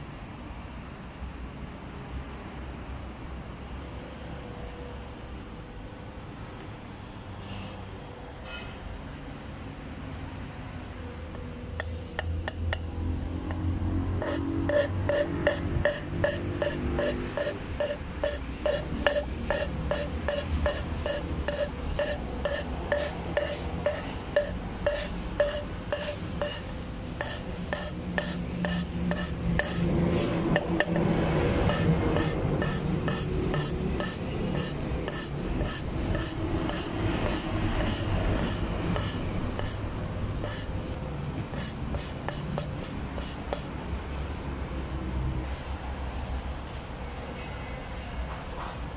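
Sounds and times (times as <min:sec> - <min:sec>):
squeaky grinding of valve lapping: 0:14.2 - 0:29.8, 0:30.5 - 0:39.8.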